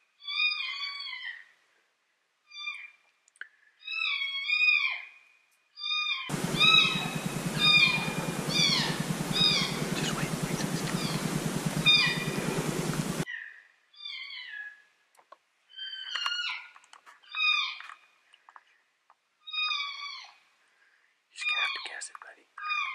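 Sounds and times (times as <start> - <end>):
high mewing calls: 6.3 - 13.2
rushing hiss: 6.3 - 13.2.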